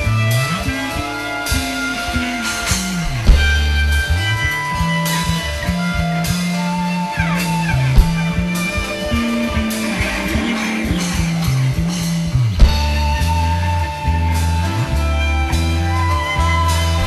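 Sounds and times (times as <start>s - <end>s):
bass guitar: 0.0s - 17.0s
drum kit: 0.0s - 17.0s
electric guitar: 0.0s - 17.0s.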